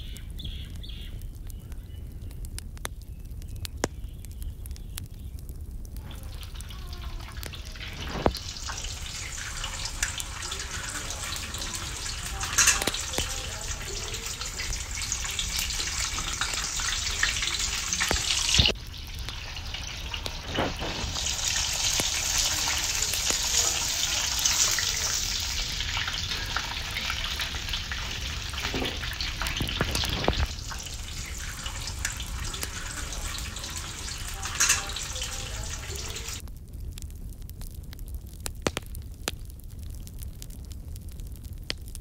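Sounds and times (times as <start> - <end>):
oil crackles: 0.0 - 42.0
oil sizzling in a pan: 5.5 - 36.4.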